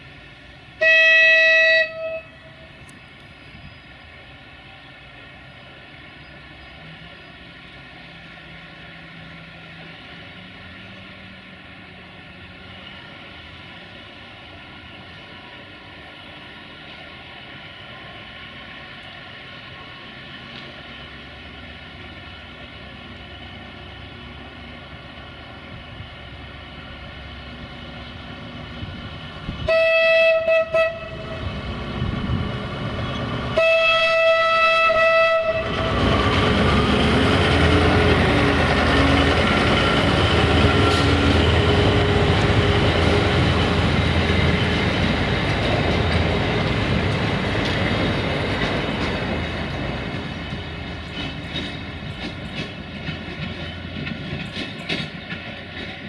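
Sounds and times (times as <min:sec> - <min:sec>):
locomotive horn blasts: 0:00.8 - 0:02.7, 0:29.6 - 0:31.6, 0:33.5 - 0:36.1
locomotive engine under load: 0:30.8 - 0:56.0
wheels clicking over rail joints: 0:35.7 - 0:56.0.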